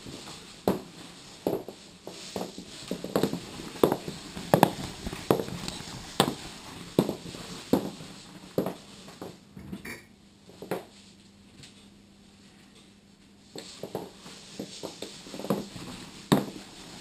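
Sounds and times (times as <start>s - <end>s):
high heels clicking on floor: 1.4s - 6.4s.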